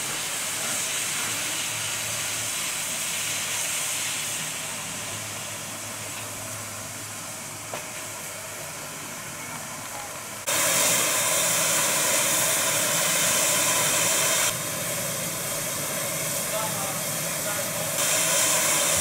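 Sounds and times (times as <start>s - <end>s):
loud bright steam hiss: 0.0s - 19.0s
steam hissing from locomotive: 0.0s - 19.0s.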